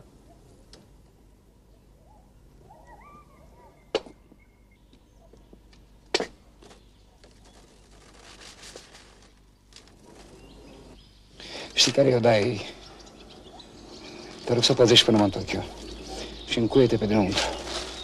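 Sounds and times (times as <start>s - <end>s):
faint bird chirps: 1.7s - 5.7s, 10.1s - 18.0s.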